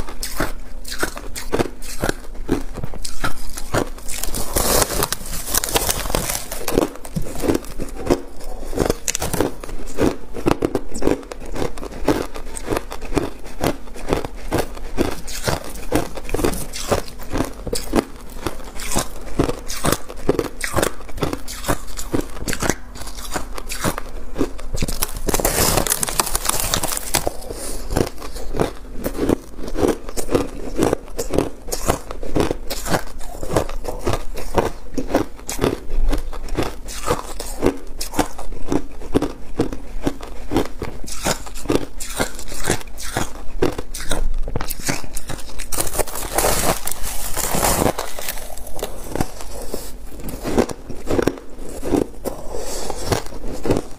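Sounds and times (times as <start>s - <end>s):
crushed ice crunching: 1.0s - 18.0s, 24.5s - 34.2s, 44.7s - 53.9s.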